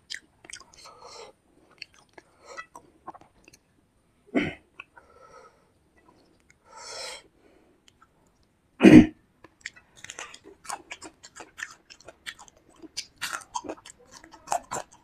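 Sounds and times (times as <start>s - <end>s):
chewing and wet mouth clicks: 0.0s - 0.9s, 1.7s - 3.6s, 9.4s - 15.0s.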